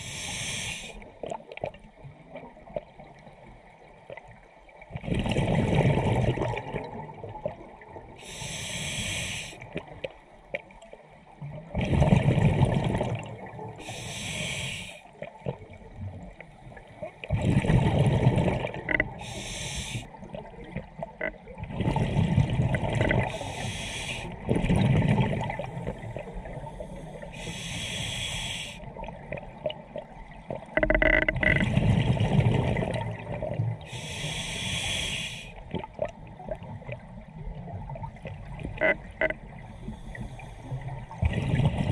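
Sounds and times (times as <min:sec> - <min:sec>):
regulator inhale hiss: 0:00.0 - 0:01.0, 0:08.2 - 0:09.6, 0:13.8 - 0:15.1, 0:19.2 - 0:20.1, 0:23.3 - 0:24.4, 0:25.8 - 0:28.9, 0:33.9 - 0:35.6, 0:39.6 - 0:40.8
exhaled air bubbling: 0:04.9 - 0:10.1, 0:11.4 - 0:41.9.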